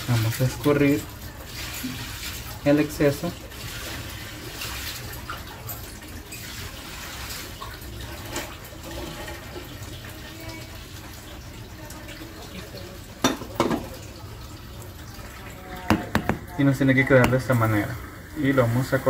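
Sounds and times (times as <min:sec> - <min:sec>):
sharp knocks: 0:15.9 - 0:16.5.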